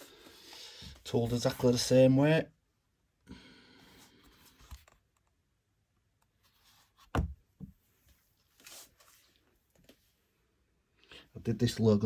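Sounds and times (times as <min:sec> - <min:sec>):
leather belt thump: 0:07.0 - 0:07.8.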